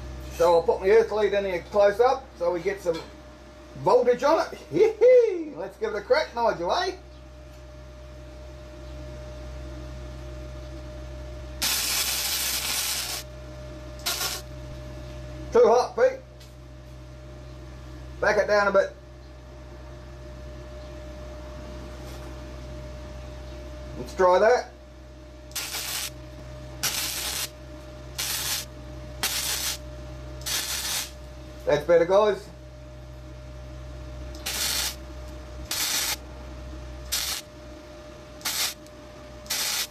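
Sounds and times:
welding arc crackling: 11.6 - 13.3, 14.0 - 14.5, 25.5 - 26.2, 26.8 - 27.6, 28.2 - 29.8, 30.4 - 31.2, 34.4 - 35.0, 35.7 - 36.2, 37.1 - 37.5, 38.4 - 38.9, 39.5 - 39.9.

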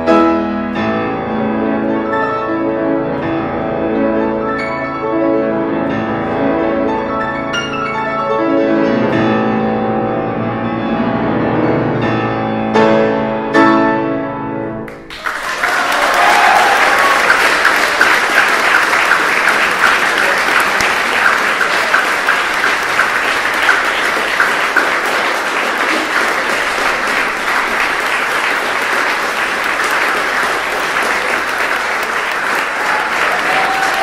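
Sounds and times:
audience applauding: 14.8 - 34.0
person clapping in an even beat: 14.9 - 34.0.

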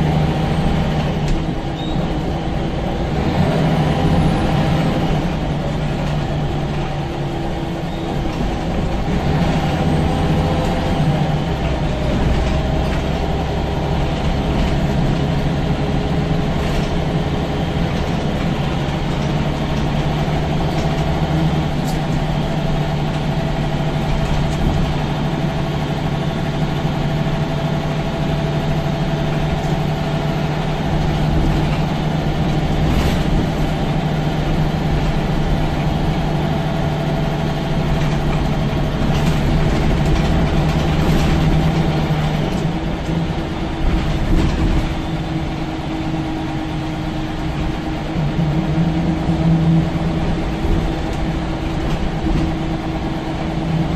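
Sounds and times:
bus diesel engine drone: 0.0 - 53.9
engine whine: 0.0 - 53.9
light rattles and knocks: 37.6 - 43.2.

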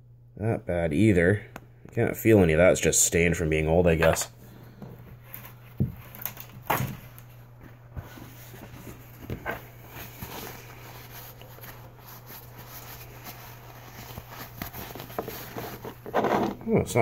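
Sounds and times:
paper towel rubbing: 7.9 - 16.6.

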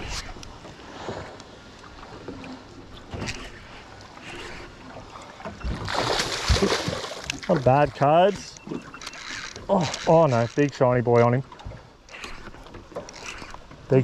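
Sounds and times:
water slapping against hull: 0.0 - 14.0.

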